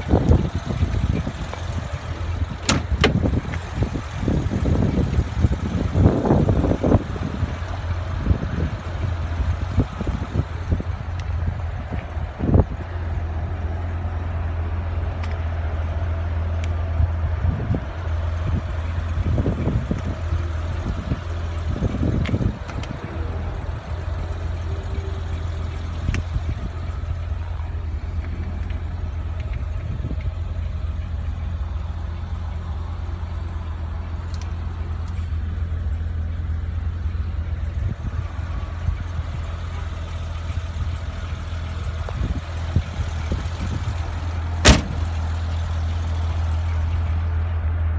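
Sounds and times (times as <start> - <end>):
car engine idling: 0.0 - 47.9
dull thumps: 44.6 - 45.2.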